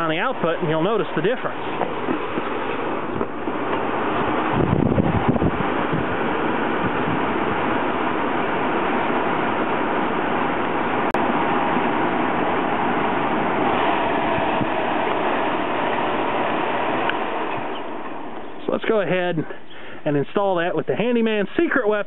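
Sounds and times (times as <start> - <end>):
blower rushing air: 0.0 - 21.6.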